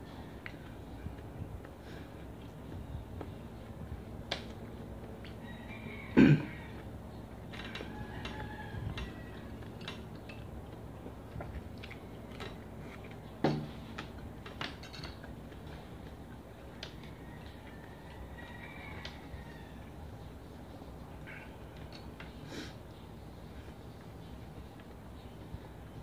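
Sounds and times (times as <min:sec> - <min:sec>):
cough-like throat sound: 0:06.2 - 0:06.5
person chewing: 0:09.3 - 0:13.3.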